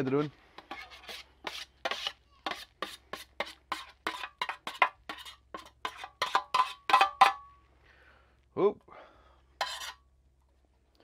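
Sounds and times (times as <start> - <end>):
spoon scraping metal container: 0.0 - 7.4, 9.6 - 10.1.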